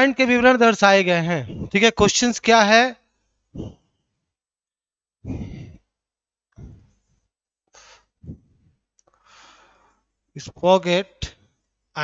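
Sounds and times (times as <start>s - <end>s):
man breathing into microphone: 5.2s - 5.8s, 7.7s - 10.0s.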